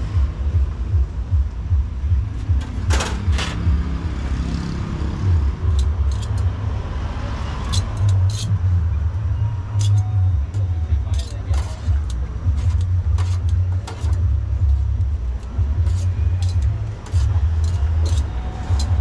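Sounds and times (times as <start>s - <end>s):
metal utensils scraping on griddle: 5.6s - 6.6s, 7.6s - 8.6s, 9.8s - 14.2s, 15.4s - 19.0s
low background rumble: 7.7s - 19.0s.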